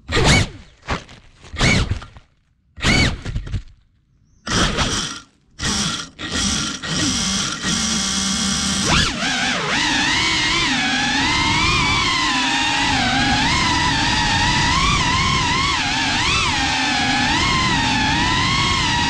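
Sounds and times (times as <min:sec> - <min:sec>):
quadcopter motors whining: 0:04.5 - 0:19.0.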